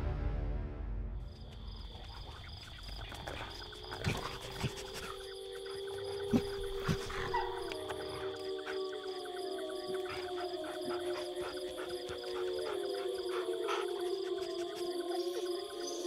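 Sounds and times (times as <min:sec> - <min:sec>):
crickets chirping: 0:01.0 - 0:16.0
wolf howling: 0:04.1 - 0:16.0.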